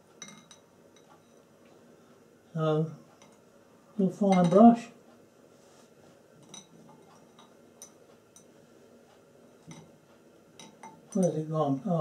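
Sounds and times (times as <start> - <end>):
brush handles clicking on glass: 10.6 - 11.5.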